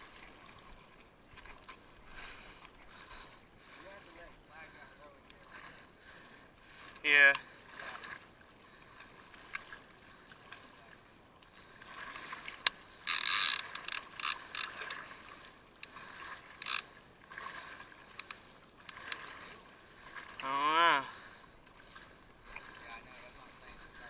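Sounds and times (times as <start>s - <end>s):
fishing reel whirring and clicking: 12.2s - 15.0s, 16.6s - 16.9s, 18.2s - 19.2s.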